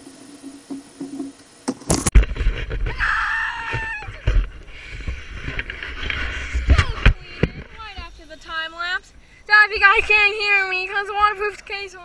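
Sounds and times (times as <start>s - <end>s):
high cry falling in pitch: 2.9s - 4.3s.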